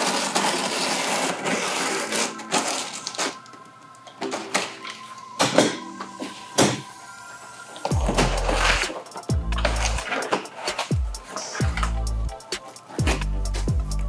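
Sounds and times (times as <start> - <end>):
box cutter slicing cardboard: 0.0 - 3.4.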